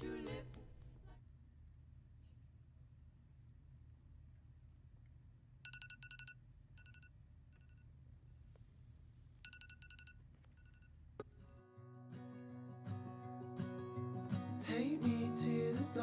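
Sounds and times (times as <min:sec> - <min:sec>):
phone alarm beeping: 0:05.7 - 0:07.1, 0:09.4 - 0:10.9.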